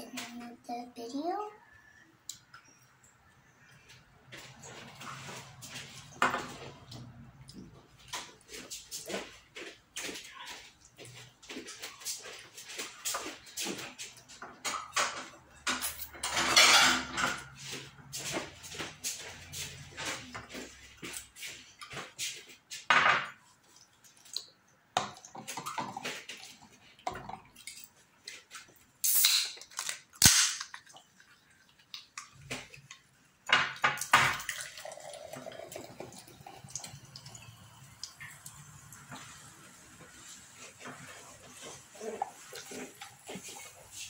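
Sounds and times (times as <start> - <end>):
child slurping and chewing noodles: 17.5 - 22.6, 39.2 - 44.0.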